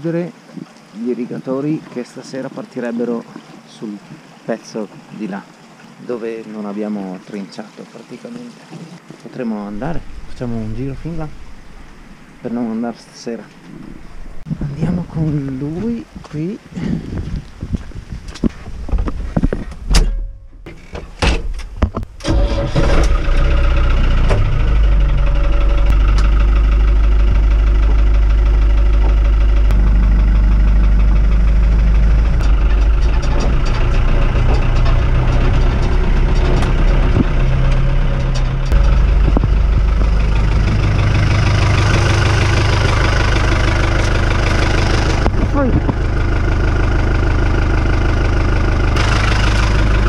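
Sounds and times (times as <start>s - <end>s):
tractor diesel engine running: 9.6s - 16.5s, 22.2s - 50.0s.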